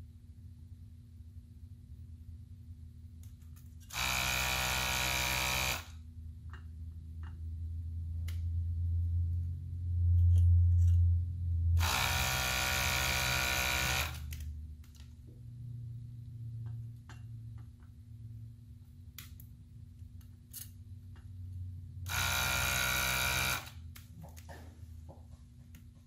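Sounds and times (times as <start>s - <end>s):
desoldering vacuum pump buzzing: 3.9s - 6.0s, 11.8s - 14.4s, 22.0s - 24.0s
low hum: 5.8s - 22.8s.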